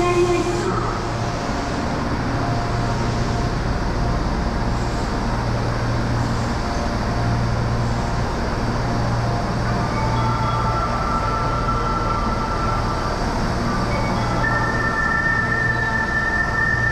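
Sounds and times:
subway train humming: 0.0s - 16.9s
underground station noise: 0.0s - 16.9s.

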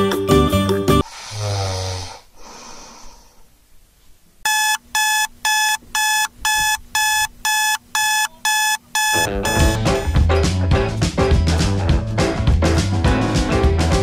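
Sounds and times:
alarm clock beeping: 4.5s - 10.2s.

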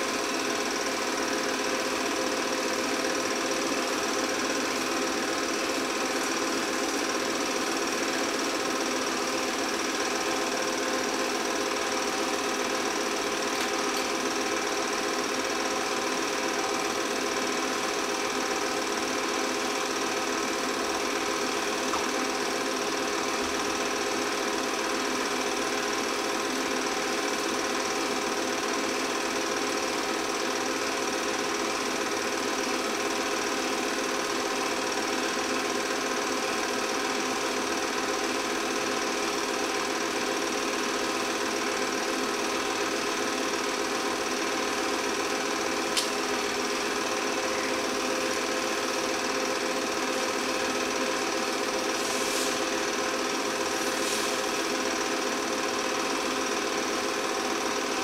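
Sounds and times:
film projector whir and chatter: 0.0s - 58.0s
sharp click: 46.0s - 46.2s.

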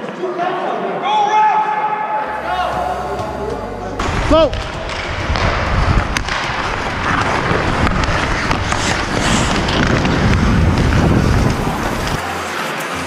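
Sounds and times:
wind on microphone: 4.0s - 12.2s
skate blades scraping on ice: 4.0s - 13.0s.

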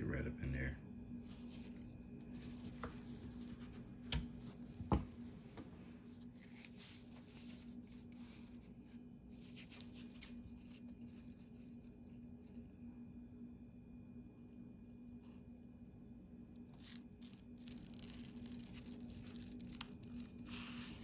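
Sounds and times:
steady low hum: 0.0s - 21.0s
rustling and scraping of foam: 1.2s - 4.8s, 5.9s - 12.8s, 16.6s - 21.0s.

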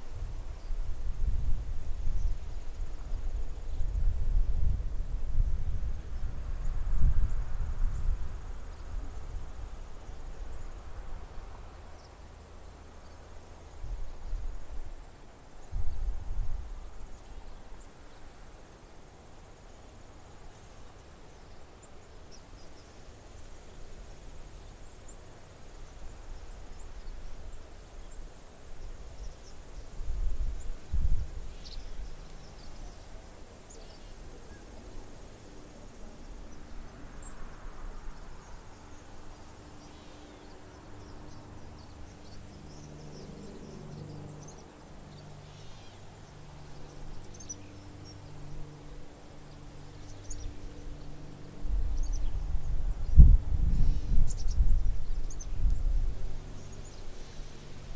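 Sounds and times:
wind buffeting microphone: 0.0s - 10.3s, 51.0s - 56.7s
swallows chirping: 38.4s - 48.3s, 51.9s - 52.5s, 53.7s - 55.6s.

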